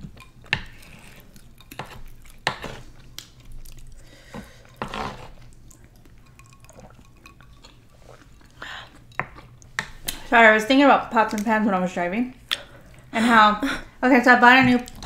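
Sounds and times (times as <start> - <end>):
quiet eating sounds: 0.0 - 14.0, 14.6 - 15.0
wooden spoons scraping metal pan: 4.4 - 5.4.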